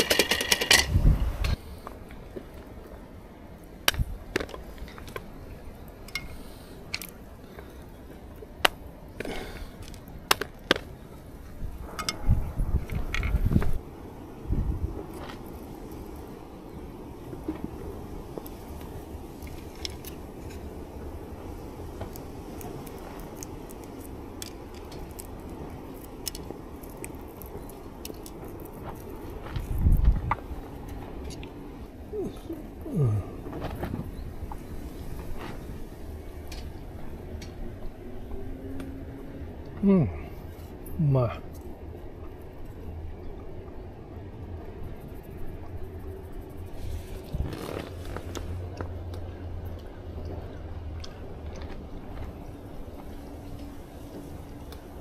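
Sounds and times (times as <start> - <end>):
steady low rumble: 0.7 - 55.0
sharp clicks of eating: 17.3 - 31.6, 47.2 - 52.4
chewing: 21.6 - 34.0.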